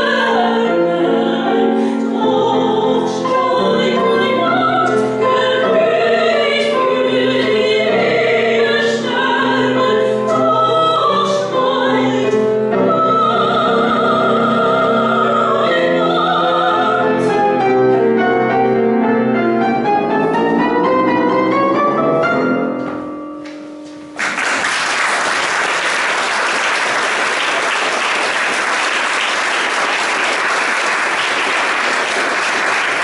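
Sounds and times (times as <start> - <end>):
operatic singing: 0.0 - 17.8
piano accompaniment: 0.0 - 33.0
audience applause: 24.2 - 33.0.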